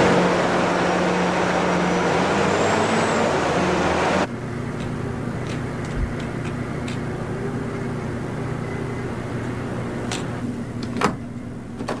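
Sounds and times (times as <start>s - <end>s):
low machine hum: 4.2s - 12.0s.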